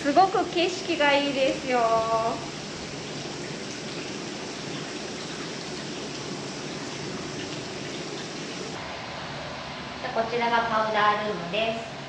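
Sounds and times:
water splashing into baths: 0.0 - 8.8.

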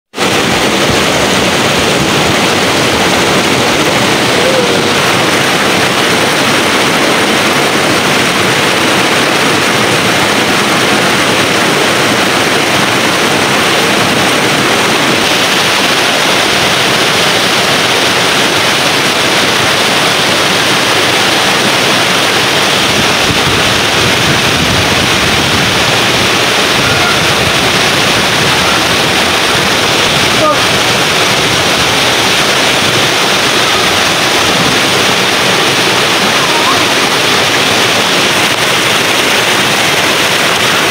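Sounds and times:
river rushing: 0.1 - 40.9
water pouring over cascade: 0.2 - 40.9.

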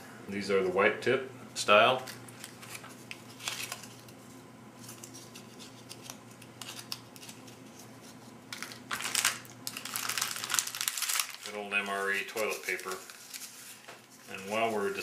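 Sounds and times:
paper and plastic packets rustling: 2.0 - 4.2, 4.8 - 15.0
packet crinkling: 2.1 - 4.2, 4.8 - 7.8, 8.5 - 15.0.

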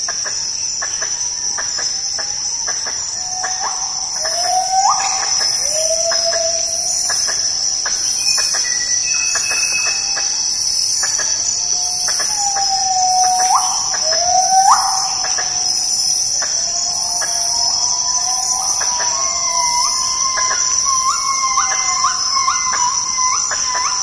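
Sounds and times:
forest insects droning: 0.0 - 24.0
gibbon whistled calls: 3.2 - 7.4, 11.8 - 15.8, 16.8 - 24.0.

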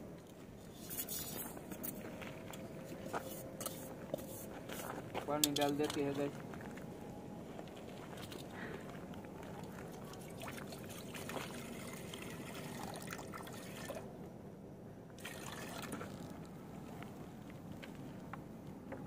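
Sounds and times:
water pouring into a steel pot: 15.2 - 16.3.

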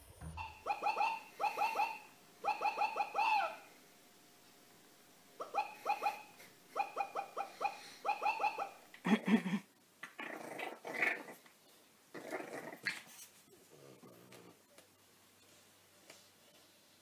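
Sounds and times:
dog yipping: 0.4 - 3.6, 5.4 - 8.8
dogs growling and grumbling: 9.1 - 11.5, 12.1 - 14.6.

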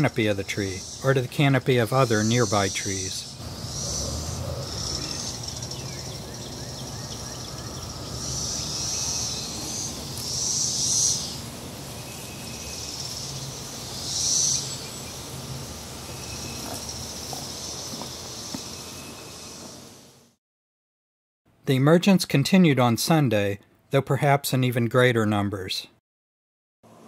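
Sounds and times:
cicadas buzzing chorus: 0.0 - 20.3.

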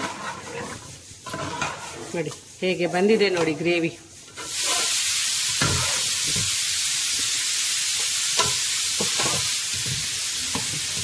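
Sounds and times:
metal ladle scraping a pot: 0.0 - 5.0
gravy sizzling in a pot: 0.0 - 11.0.

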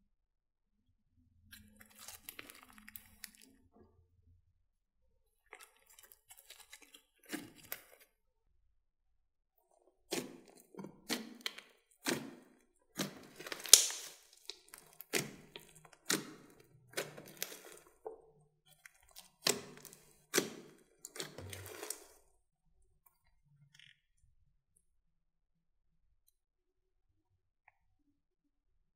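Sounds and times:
slime popping and crackling: 1.8 - 3.4, 10.1 - 18.1, 18.7 - 22.2.

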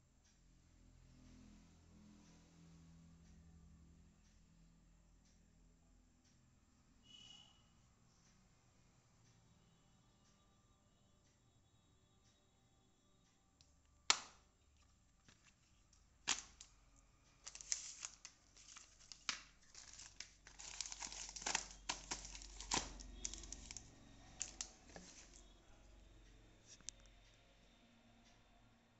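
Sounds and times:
plastic crinkling and rustling: 14.8 - 25.5.

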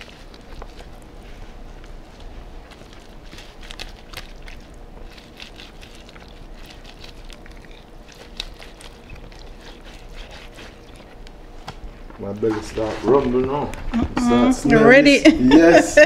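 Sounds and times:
hands squishing wet fish: 0.0 - 12.0.

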